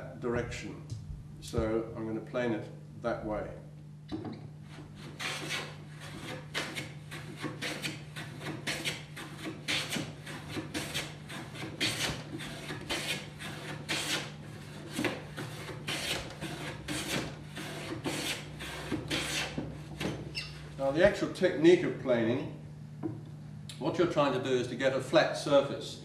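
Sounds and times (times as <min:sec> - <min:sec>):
hand plane shaving wood: 0:04.7 - 0:20.2.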